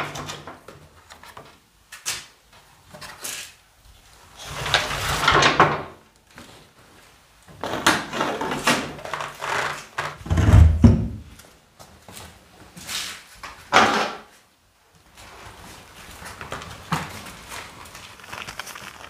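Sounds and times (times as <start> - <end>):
heavy low thump: 10.3 - 11.3.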